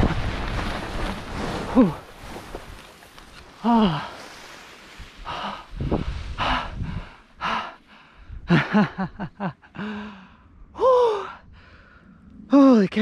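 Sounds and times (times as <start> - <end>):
man breathing hard: 5.2 - 8.5, 9.7 - 12.2.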